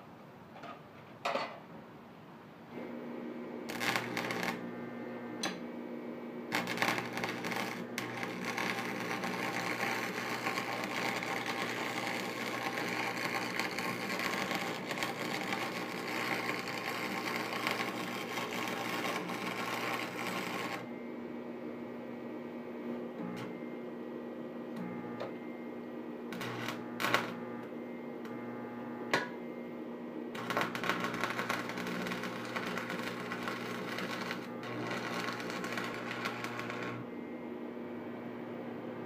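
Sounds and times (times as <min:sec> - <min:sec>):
welding arc crackling: 0:03.7 - 0:04.8, 0:06.5 - 0:20.9, 0:26.3 - 0:27.7, 0:30.4 - 0:37.1.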